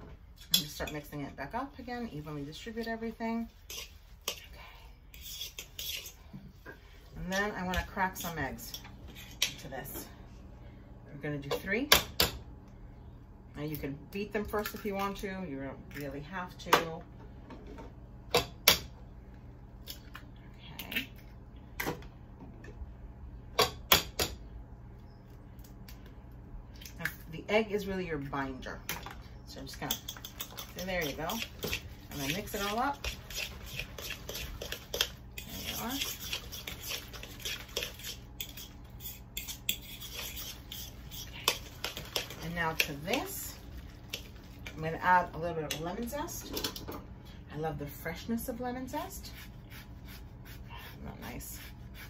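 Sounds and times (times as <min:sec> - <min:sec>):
utensil stirring wet mixture: 0:01.8 - 0:08.8, 0:29.0 - 0:45.9
utensil scraping and clicking bowl: 0:03.6 - 0:06.2, 0:29.0 - 0:44.8.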